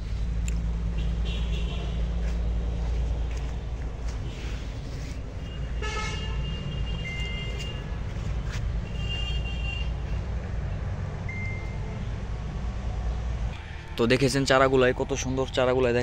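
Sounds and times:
steady low rumble: 0:00.0 - 0:16.0
horns honking: 0:00.8 - 0:03.4, 0:04.1 - 0:12.2
high beeps: 0:11.3 - 0:11.8.

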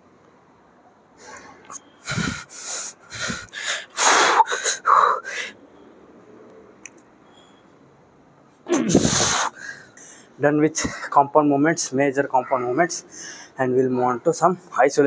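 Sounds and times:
strained breathing and gasps: 0:01.3 - 0:05.6, 0:09.0 - 0:11.1, 0:13.1 - 0:13.6.

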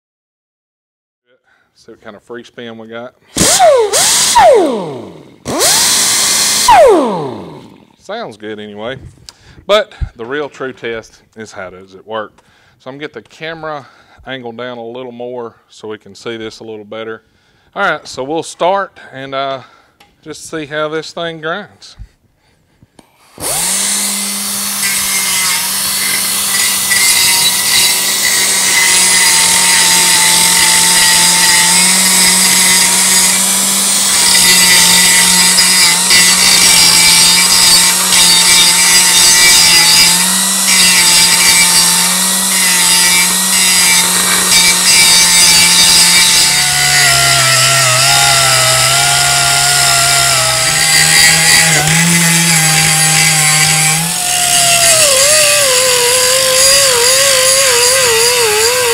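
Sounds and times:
air angle grinder grinding metal: 0:03.3 - 0:08.0, 0:23.0 - 0:58.9.

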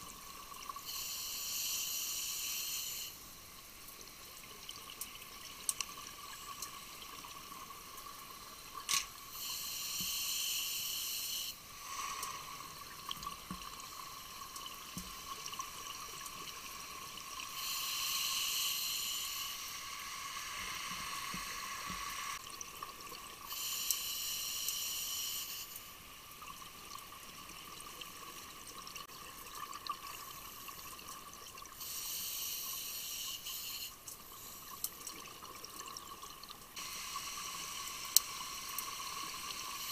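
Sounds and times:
faint steady hum: 0:00.0 - 0:39.9.

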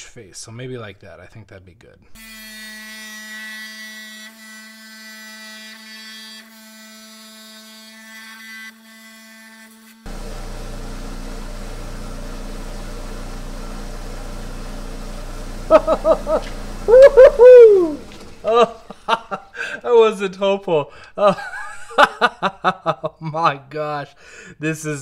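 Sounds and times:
stone saw running: 0:10.0 - 0:19.1.

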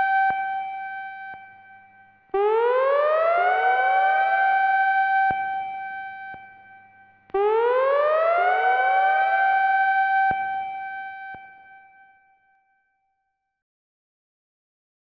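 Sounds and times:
warning siren wailing: 0:02.4 - 0:06.2, 0:07.4 - 0:11.4.

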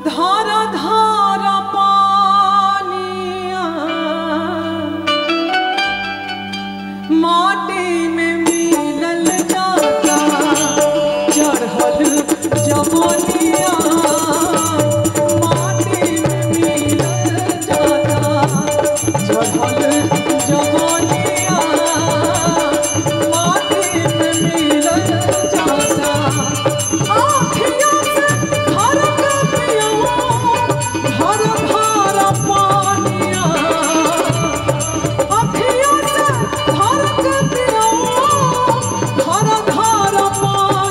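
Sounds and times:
woman singing into a microphone: 0:00.0 - 0:06.0, 0:06.8 - 0:40.9
band playing: 0:08.4 - 0:40.9
percussion beat: 0:08.5 - 0:40.9.

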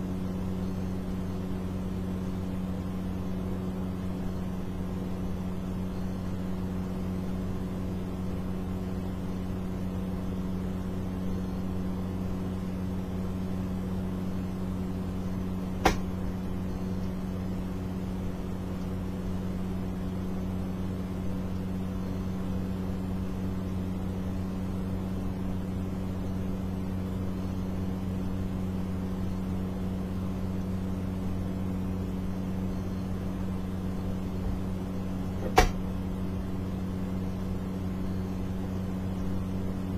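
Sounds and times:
steady hum: 0:00.0 - 0:39.9
sharp click: 0:15.8 - 0:16.1, 0:35.4 - 0:35.8.

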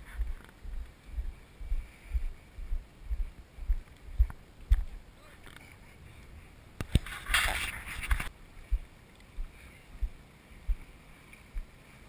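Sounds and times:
soft low thuds: 0:00.0 - 0:05.0, 0:08.7 - 0:10.9.

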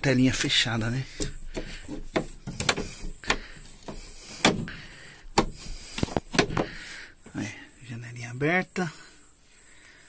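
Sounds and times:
window clicks and knocks: 0:01.2 - 0:04.7, 0:05.3 - 0:06.8.

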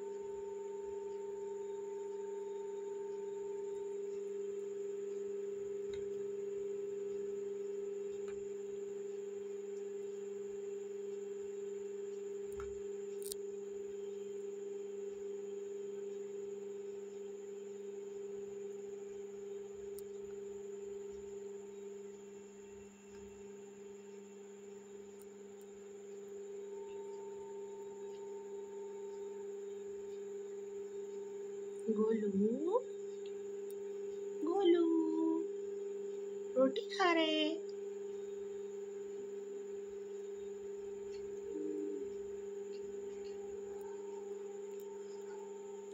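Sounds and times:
electrical hum: 0:00.0 - 0:45.9.

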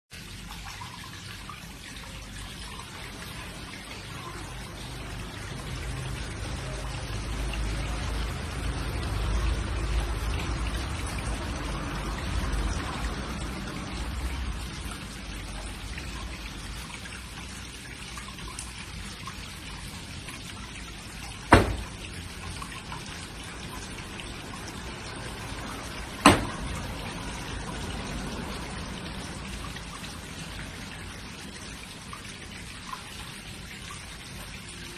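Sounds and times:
water trickling: 0:00.1 - 0:34.9
sharp thumps: 0:21.5 - 0:22.0.

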